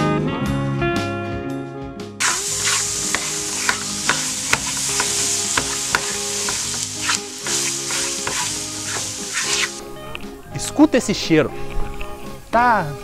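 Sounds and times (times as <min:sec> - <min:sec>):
garlic sizzling in hot oil: 0:02.2 - 0:09.8
spatula scraping a pan: 0:02.2 - 0:09.8.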